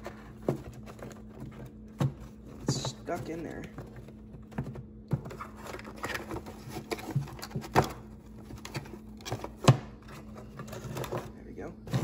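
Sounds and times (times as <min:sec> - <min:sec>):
cardboard rubbing and scraping: 0:05.2 - 0:11.2.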